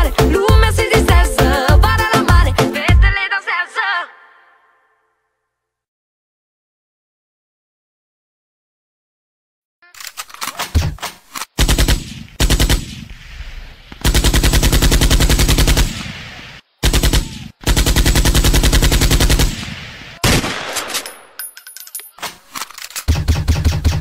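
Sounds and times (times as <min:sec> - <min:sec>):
machine-gun bursts: 0:10.0 - 0:13.0, 0:14.0 - 0:16.0, 0:16.8 - 0:21.2.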